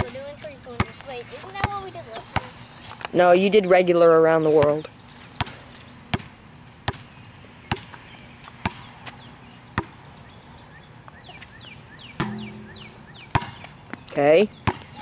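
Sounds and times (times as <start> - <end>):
basketball bouncing on pavement: 0.0 - 2.6, 5.4 - 10.1, 12.1 - 15.0
bird chirping: 7.1 - 15.0.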